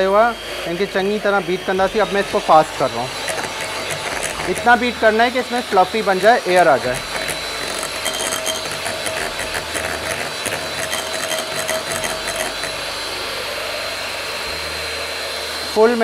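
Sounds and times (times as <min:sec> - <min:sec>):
electric hand mixer running: 0:00.0 - 0:16.0
beaters rattling against glass bowl: 0:06.8 - 0:12.8.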